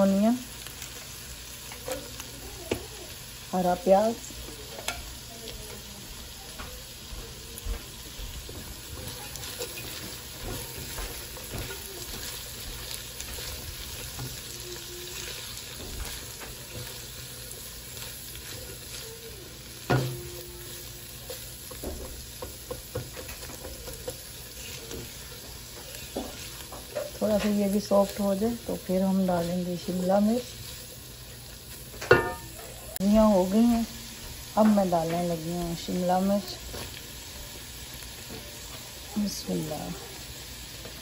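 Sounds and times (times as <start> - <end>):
vegetables sizzling in a wok: 0.0 - 41.0
spatula scraping a pan: 8.5 - 32.8.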